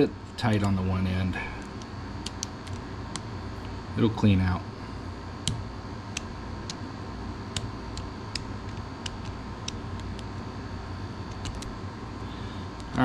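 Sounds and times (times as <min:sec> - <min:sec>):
steady low hum: 0:00.0 - 0:13.0
sharp metal clicks: 0:01.6 - 0:03.3, 0:05.4 - 0:06.8.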